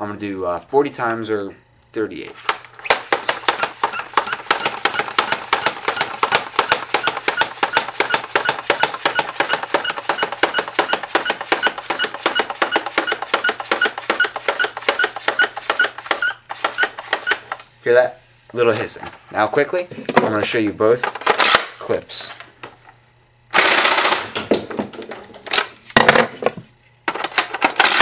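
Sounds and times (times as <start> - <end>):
toy blaster pump clacking: 2.7 - 17.6, 23.6 - 24.3, 27.5 - 28.0.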